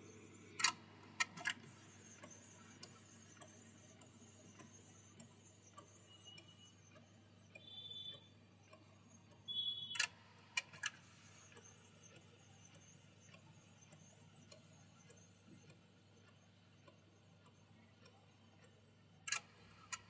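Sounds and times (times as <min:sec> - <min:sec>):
printer whine: 0:00.0 - 0:18.5
printer hum and ticking: 0:00.0 - 0:20.0
printer clicks: 0:00.4 - 0:06.6.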